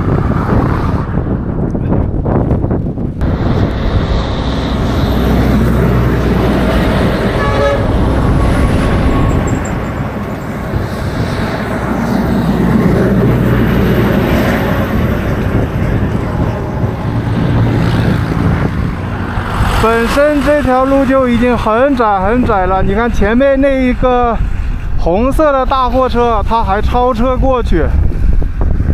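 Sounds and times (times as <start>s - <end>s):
road traffic rumble: 0.0s - 27.2s
wind buffeting microphone: 0.0s - 28.9s
short horn toot: 7.3s - 9.4s.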